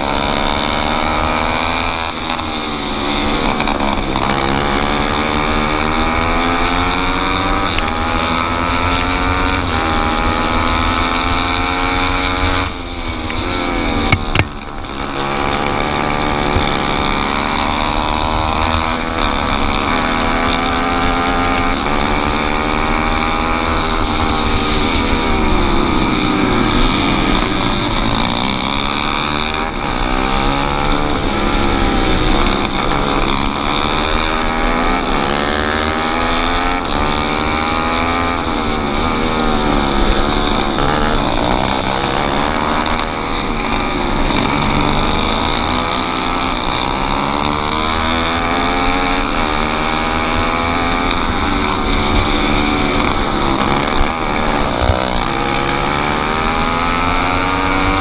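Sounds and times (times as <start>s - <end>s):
kart engine revving: 0.0s - 58.0s
sharp knocks: 14.1s - 14.7s.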